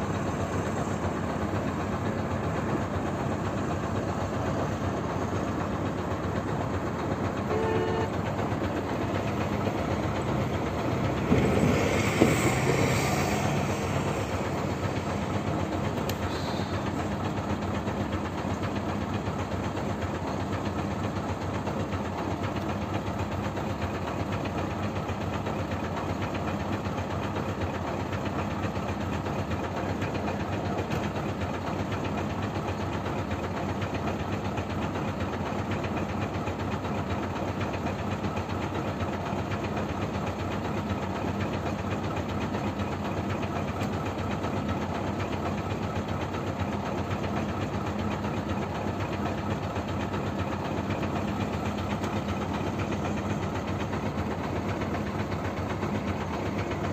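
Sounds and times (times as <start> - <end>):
truck engine idling: 0.0 - 56.9.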